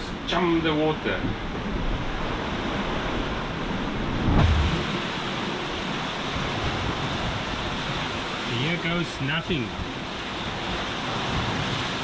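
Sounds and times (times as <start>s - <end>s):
sea rushing along hull: 0.0s - 12.0s
wind on microphone: 1.1s - 8.5s.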